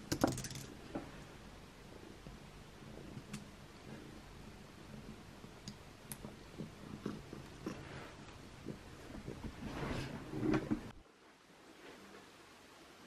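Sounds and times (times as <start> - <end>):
cat purring: 6.4 - 10.5.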